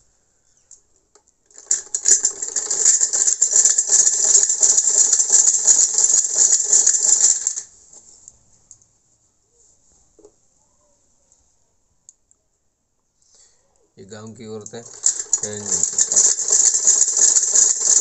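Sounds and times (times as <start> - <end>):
sewing machine clattering: 1.5 - 7.7, 14.5 - 18.0.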